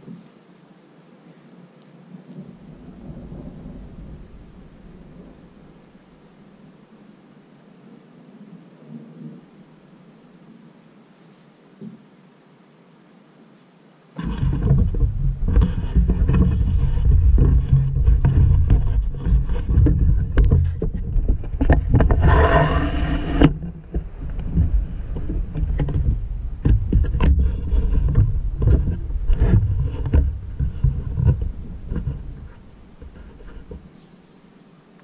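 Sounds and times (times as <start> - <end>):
thunder rumbling: 2.1 - 6.8, 14.2 - 33.8.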